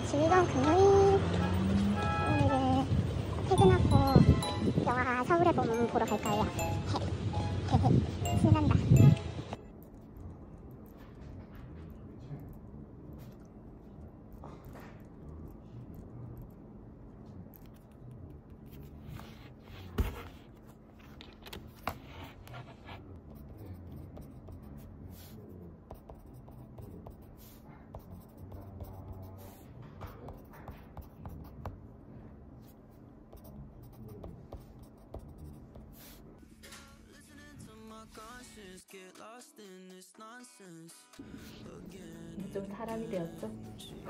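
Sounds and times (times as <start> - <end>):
pen scratching on paper: 17.5 - 20.8, 21.7 - 31.8, 32.6 - 36.3.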